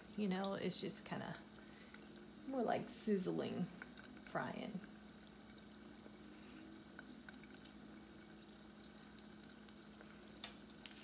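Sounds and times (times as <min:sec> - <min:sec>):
food sizzling in oil: 0:00.0 - 0:11.0
small pops and ticks: 0:03.8 - 0:04.4, 0:06.9 - 0:11.0.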